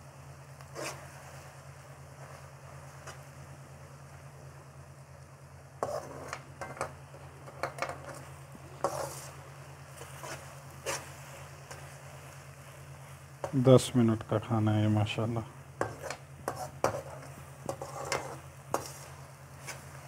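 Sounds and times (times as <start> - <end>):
light sizzle: 0.0 - 20.0
spatula scraping wok: 0.7 - 1.5, 5.8 - 13.7, 15.8 - 20.0.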